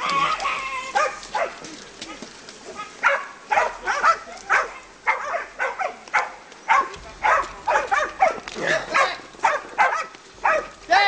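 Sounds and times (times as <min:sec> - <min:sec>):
dogs barking and yelping: 0:00.0 - 0:01.7, 0:02.7 - 0:10.8.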